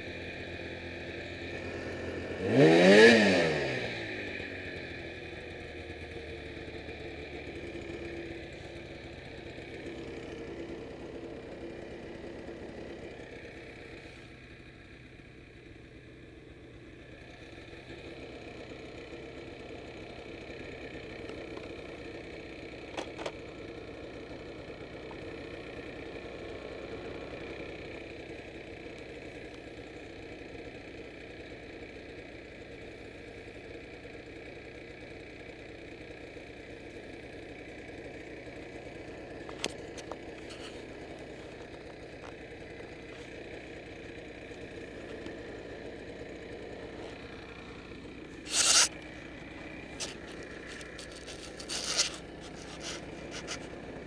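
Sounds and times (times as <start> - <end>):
snowmobile engine idling: 0.0 - 54.0
sharp clicks: 48.5 - 49.0.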